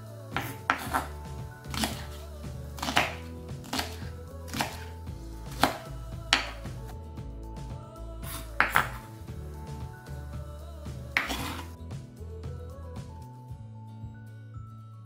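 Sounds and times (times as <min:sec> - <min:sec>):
background music: 0:00.0 - 0:15.0
knife chopping on wooden board: 0:00.4 - 0:02.2, 0:02.8 - 0:04.9, 0:05.5 - 0:06.8, 0:08.3 - 0:09.1, 0:11.2 - 0:11.7.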